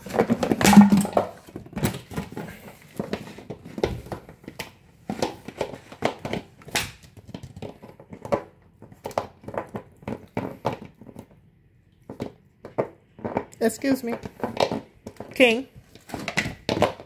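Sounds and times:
dog chewing plastic bottle: 0.0 - 13.6, 14.2 - 17.0.

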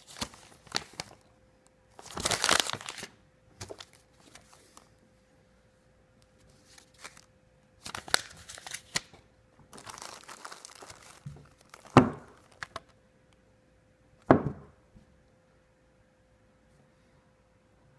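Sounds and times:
plastic packaging crinkling: 0.0 - 1.3, 2.0 - 4.9, 6.5 - 13.0.

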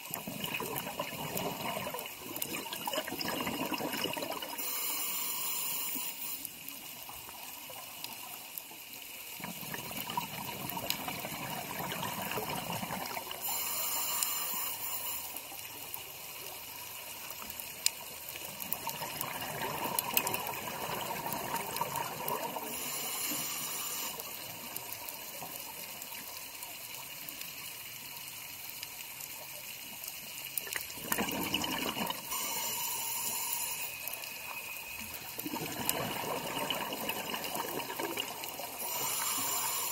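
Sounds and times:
regulator bubbles gurgling: 0.0 - 4.7, 9.4 - 13.6, 18.5 - 23.0, 30.6 - 32.6, 34.4 - 39.9
steady watery rush: 35.4 - 39.9.

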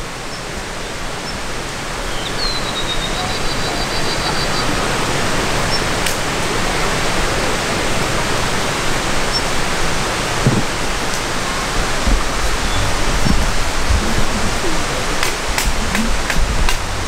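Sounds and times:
mountain stream rushing: 0.0 - 17.0
soft low knocks: 10.4 - 17.0.

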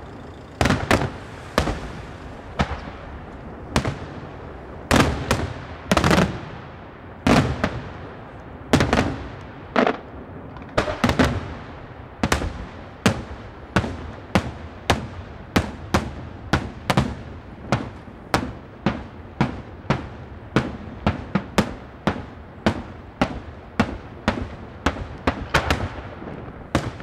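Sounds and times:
fireworks shells bursting: 0.0 - 6.4.

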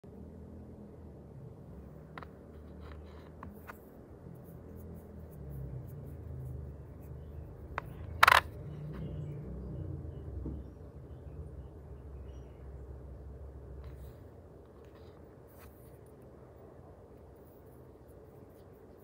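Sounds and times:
fingers handling coins: 2.1 - 8.8
coin scrape: 8.0 - 8.5.

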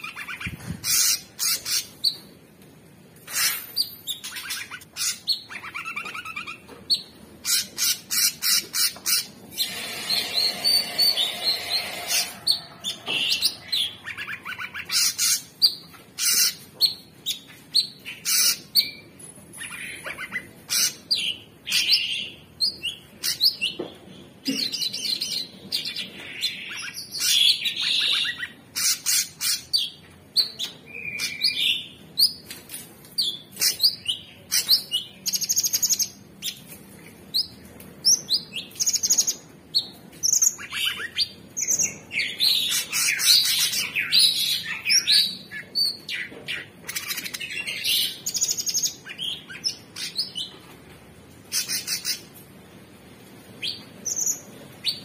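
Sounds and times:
bird singing: 3.3 - 32.4.

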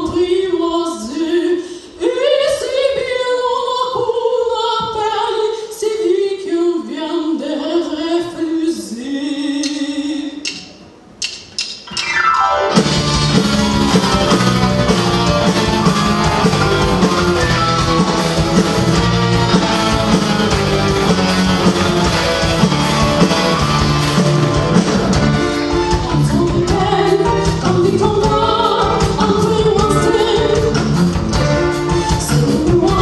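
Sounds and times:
woman singing: 0.0 - 10.5, 25.9 - 30.9, 32.1 - 33.0
rock band with strings playing: 12.0 - 33.0.

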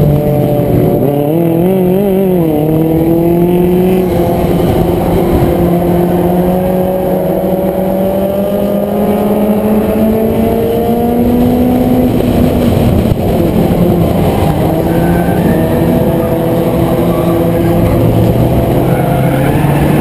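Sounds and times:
race car engine revving: 0.0 - 20.0
road and tyre rumble: 0.0 - 20.0.

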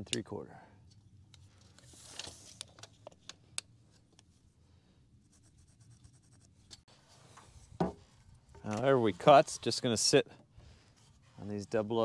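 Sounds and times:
pencil scratching on wood: 5.2 - 6.6.

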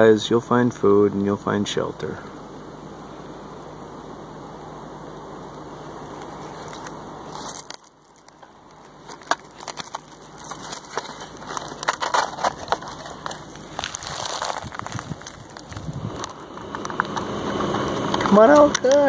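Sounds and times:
steady background hiss: 0.0 - 19.0
crunching of dry grass and leaves: 6.1 - 18.4.

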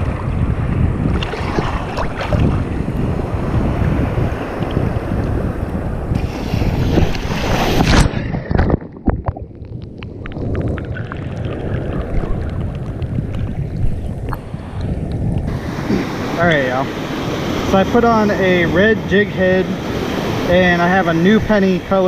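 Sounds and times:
surf: 0.0 - 9.5, 10.1 - 22.0
wind buffeting microphone: 0.0 - 22.0
wave crashing: 0.9 - 9.5, 10.1 - 22.0
crackling clicks underwater: 7.8 - 15.5.

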